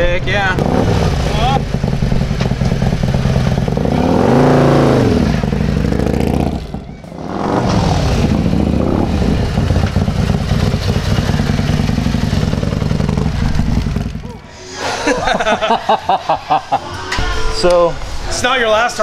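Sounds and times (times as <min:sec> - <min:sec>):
motorcycle engine pulling away: 0:00.5 - 0:14.4.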